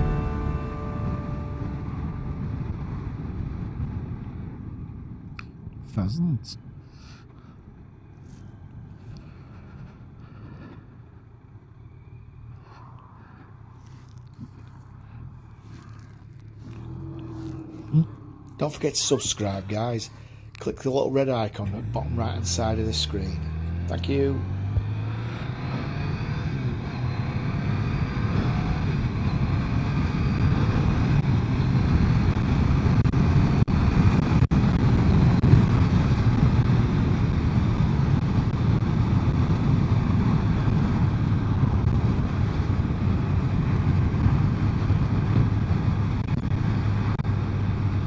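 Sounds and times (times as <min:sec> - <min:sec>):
motorcycle engine running: 0:00.0 - 0:04.3
wind noise: 0:24.6 - 0:48.0.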